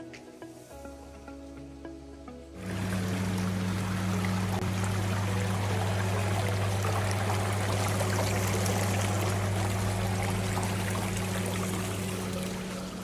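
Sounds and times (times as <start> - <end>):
steady low hum: 2.6 - 13.0
water churning and bubbling: 2.6 - 13.0.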